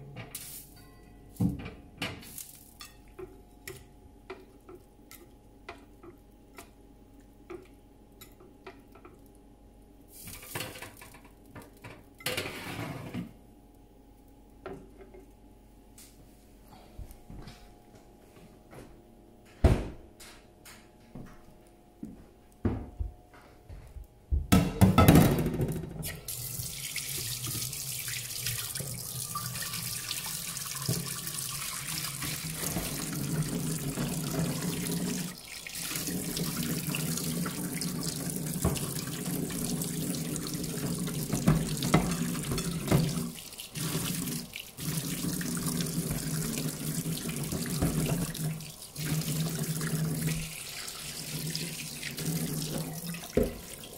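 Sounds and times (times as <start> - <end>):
oven door shutting with a knock: 19.6 - 20.1
tap running into metal sink: 30.7 - 31.2, 38.5 - 39.7, 40.6 - 43.3, 47.2 - 48.5, 52.2 - 53.8.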